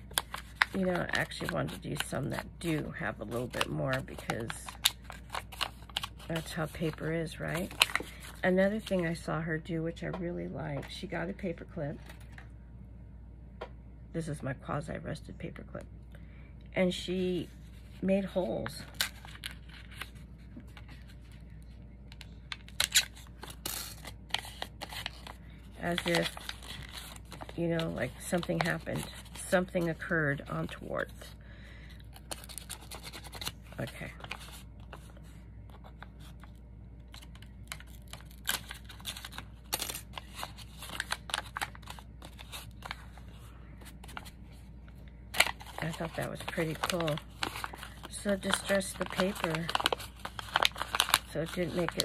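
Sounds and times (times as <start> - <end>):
paper crinkling: 0.0 - 9.0, 17.7 - 31.2, 32.1 - 44.5, 45.3 - 52.0
faint low hum: 0.0 - 52.0.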